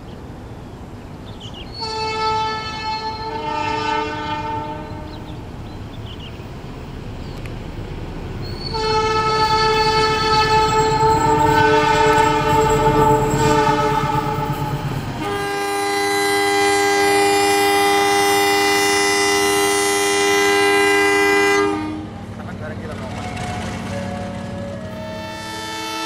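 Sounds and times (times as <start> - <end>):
passing train rumble: 0.0 - 26.0
diesel locomotive horn: 1.7 - 5.5, 8.4 - 22.4, 23.1 - 26.0.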